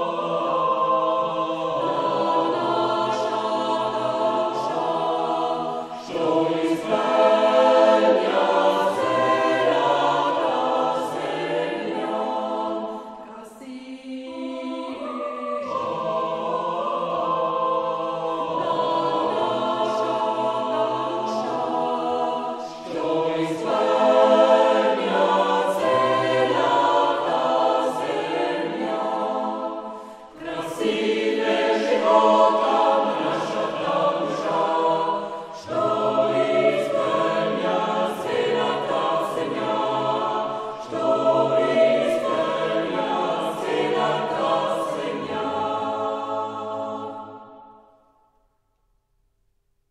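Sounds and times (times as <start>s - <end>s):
choir singing: 0.0s - 48.4s.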